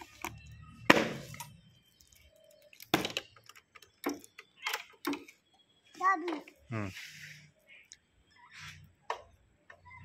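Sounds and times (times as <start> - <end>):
motorcycle parts clicking and knocking: 0.0 - 5.5.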